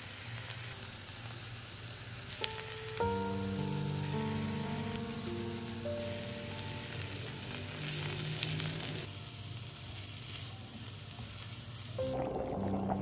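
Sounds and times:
food sizzling in hot oil: 0:00.0 - 0:12.2
held music notes: 0:02.3 - 0:10.2.

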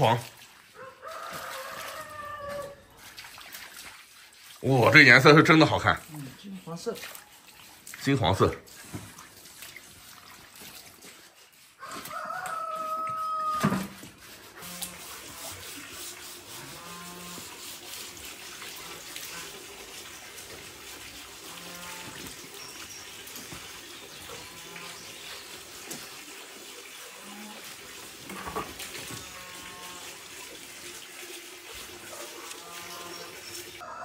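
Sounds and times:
roosters crowing: 0:00.8 - 0:02.9, 0:11.8 - 0:14.0, 0:32.3 - 0:34.0
farm animals calling: 0:16.5 - 0:17.6, 0:21.3 - 0:25.6, 0:28.4 - 0:30.2, 0:32.0 - 0:34.0.

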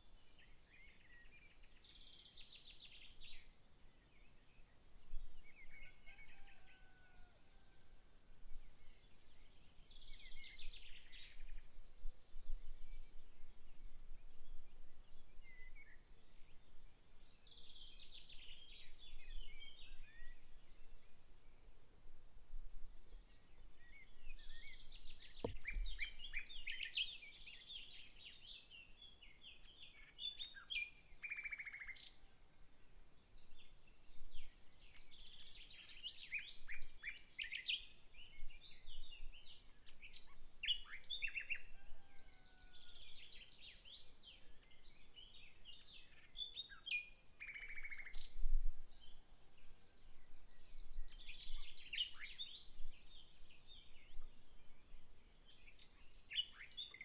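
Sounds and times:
songbirds singing: 0:00.0 - 0:57.0
low thumps: 0:25.4 - 0:25.9.

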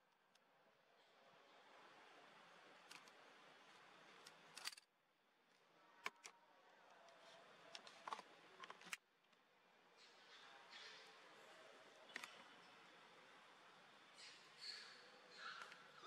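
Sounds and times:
soft clicks: 0:12.0 - 0:12.8.

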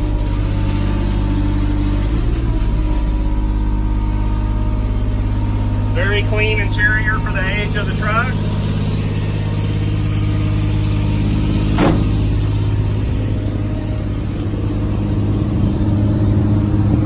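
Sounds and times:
truck engine running: 0:00.0 - 0:17.0
sharp knock: 0:11.8 - 0:12.2.

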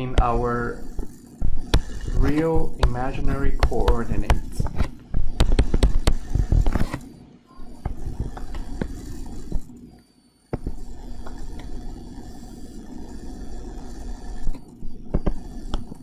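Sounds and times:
stylus scraping on touchscreen: 0:00.0 - 0:10.0, 0:10.6 - 0:16.0
stylus tapping on touchscreen: 0:01.4 - 0:07.0.

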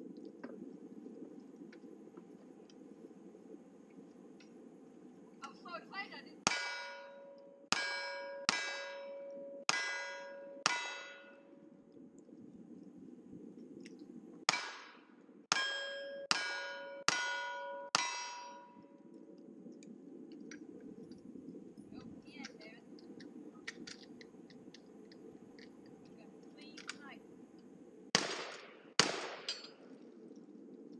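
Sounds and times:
steel plate ringing: 0:06.5 - 0:11.7, 0:14.5 - 0:18.9.

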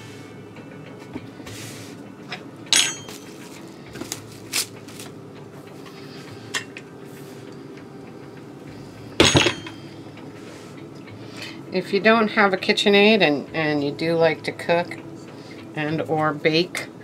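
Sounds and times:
metal utensils clattering: 0:02.7 - 0:03.3, 0:09.2 - 0:09.8.

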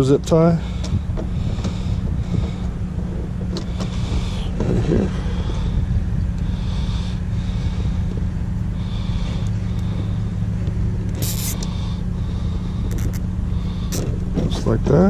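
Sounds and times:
heavy trucks and machinery rumble: 0:00.0 - 0:15.0
zip tie pulled tight: 0:11.2 - 0:11.7, 0:12.9 - 0:13.2.

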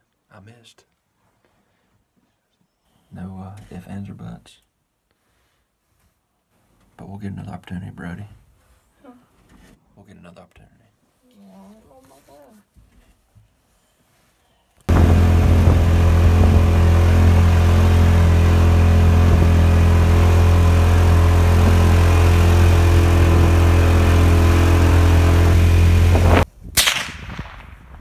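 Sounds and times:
vehicle engine humming: 0:14.9 - 0:26.4.

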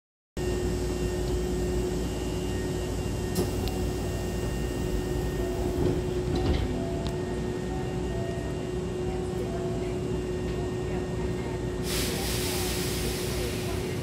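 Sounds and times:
sliding train doors closing: 0:03.3 - 0:07.2.

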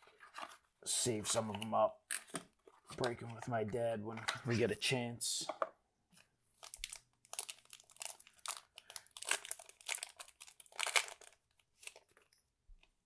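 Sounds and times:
foil wrapper crinkling and tearing: 0:06.6 - 0:12.4.

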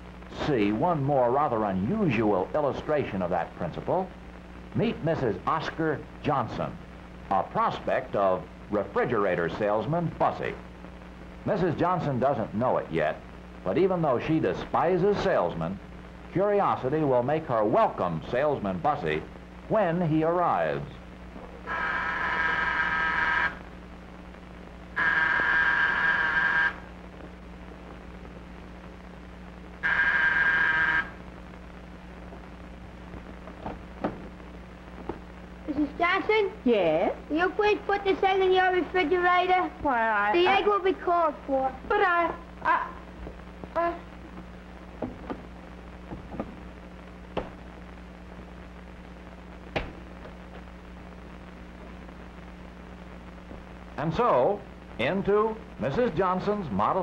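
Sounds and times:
steady low hum: 0:00.0 - 0:57.0
electric doorbell buzzing: 0:21.7 - 0:23.6, 0:25.0 - 0:26.8, 0:29.8 - 0:31.2.

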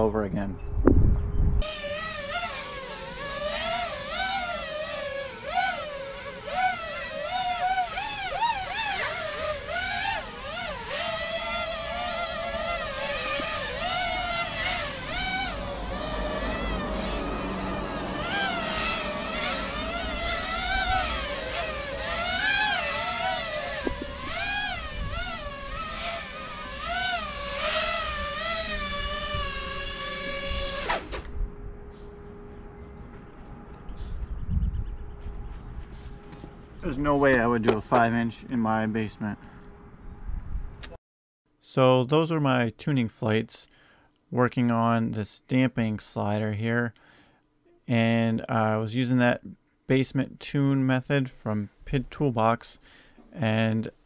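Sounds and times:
drone motors whining: 0:00.6 - 0:37.3.

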